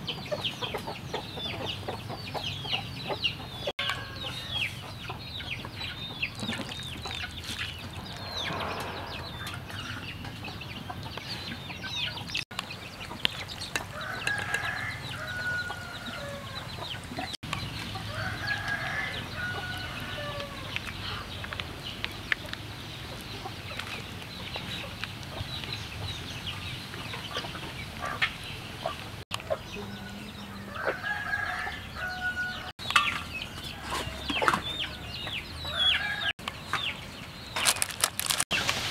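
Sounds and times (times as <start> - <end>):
chickens clucking: 0.0 - 38.8
rooster-like calls: 18.0 - 21.2, 29.8 - 32.8.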